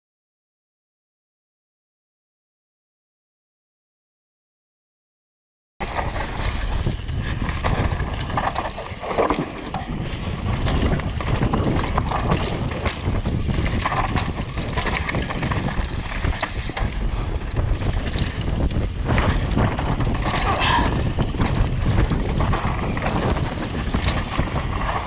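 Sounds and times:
mountain bike rattling on trail: 5.8 - 25.0
wind buffeting microphone: 5.8 - 25.0.

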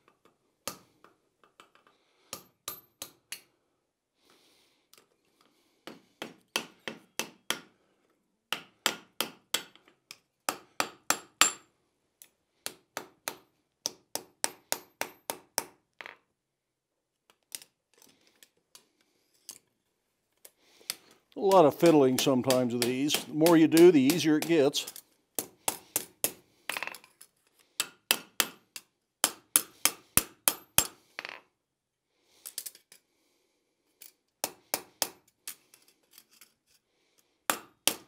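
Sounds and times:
hammer striking steel on anvil: 21.8 - 24.8.

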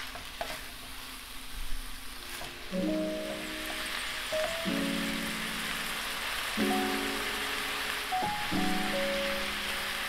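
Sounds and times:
food sizzling in a skillet: 0.0 - 10.0
background music with held chords: 2.7 - 10.0.

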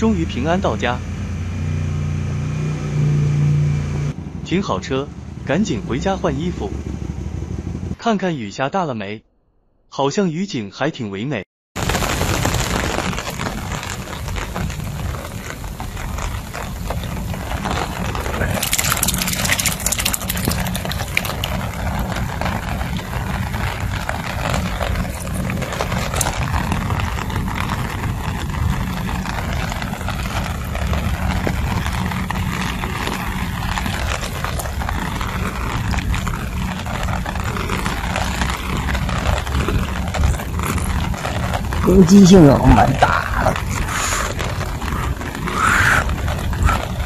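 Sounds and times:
heavy rain falling: 11.8 - 47.0
low rumble: 12.6 - 47.0.

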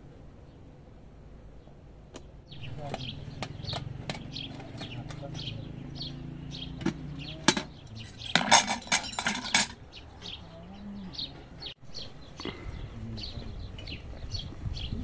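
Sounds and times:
birds chirping: 1.4 - 15.0
cutlery clinking on dishes: 7.4 - 9.8.

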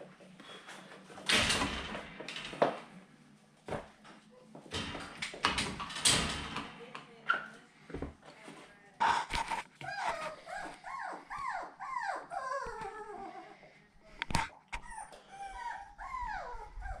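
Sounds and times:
puppy whining: 9.8 - 13.7, 14.6 - 17.0.

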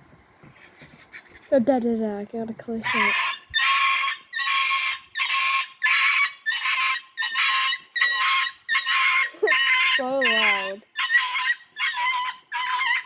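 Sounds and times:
possum screeching: 2.8 - 13.0.

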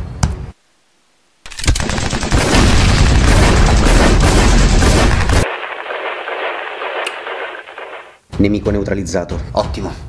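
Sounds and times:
automatic gunfire: 1.5 - 8.2
explosions: 1.7 - 8.2.

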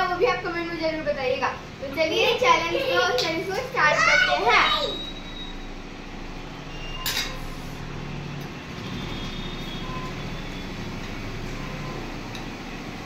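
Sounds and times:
steady low background hum: 0.0 - 13.0
cutlery clinking on steel plates: 7.0 - 7.5.

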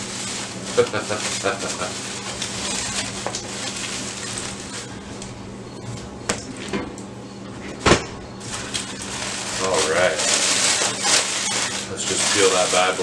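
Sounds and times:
plastic bag and foil crinkling: 0.0 - 5.3, 8.4 - 13.0.

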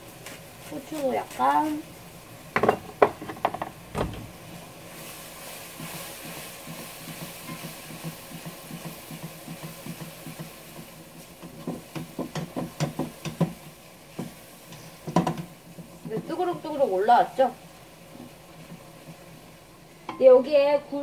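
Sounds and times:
spatula stirring: 0.0 - 2.0, 4.9 - 16.9
sauce bubbling in a pan: 0.0 - 21.0
knock on pan: 2.6 - 4.4, 15.1 - 15.5.

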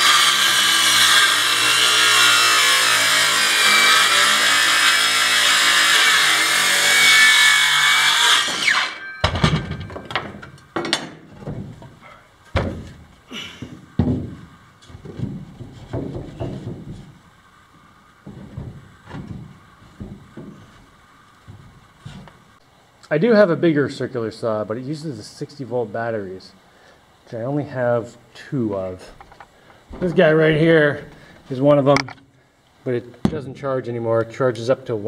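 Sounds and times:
circular saw cutting wood: 0.0 - 9.1
wooden boards knocking: 9.2 - 17.2, 18.2 - 22.3.

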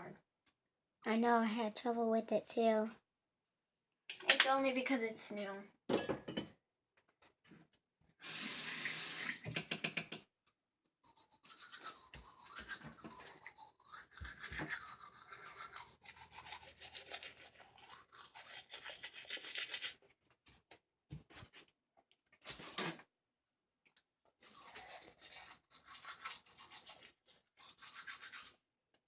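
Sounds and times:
toothbrush scrubbing teeth: 11.0 - 20.0, 24.4 - 28.6.

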